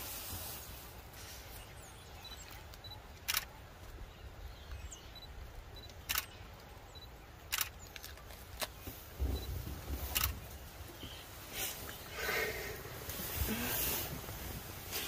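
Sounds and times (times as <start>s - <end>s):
camera shutter clicks: 3.2s - 3.5s, 5.8s - 6.4s, 7.5s - 7.8s, 10.1s - 10.4s.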